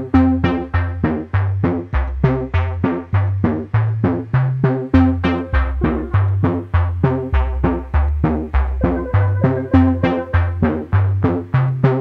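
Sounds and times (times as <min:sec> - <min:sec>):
low bass line: 0:00.0 - 0:11.5
background music: 0:04.8 - 0:12.0.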